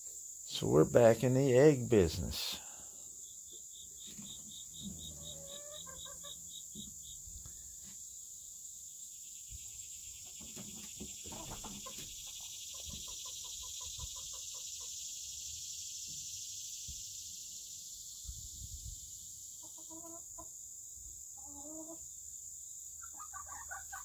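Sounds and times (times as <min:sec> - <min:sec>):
insects chirring: 0:00.0 - 0:24.0
chickens clucking: 0:03.8 - 0:07.5, 0:10.2 - 0:15.3, 0:19.5 - 0:20.6, 0:21.4 - 0:22.2, 0:23.0 - 0:24.0.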